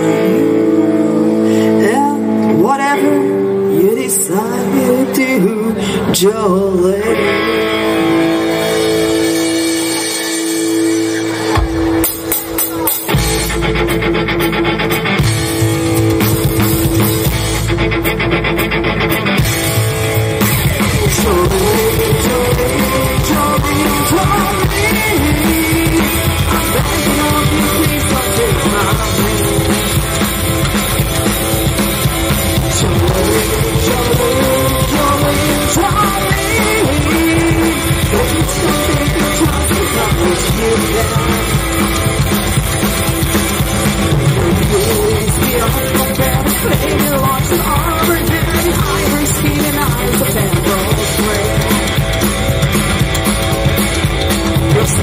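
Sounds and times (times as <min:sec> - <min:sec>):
woman singing: 0:00.0 - 0:08.1, 0:20.8 - 0:30.3, 0:32.6 - 0:41.9, 0:44.2 - 0:52.1, 0:54.6 - 0:55.0
live rock and roll band: 0:00.0 - 0:55.0.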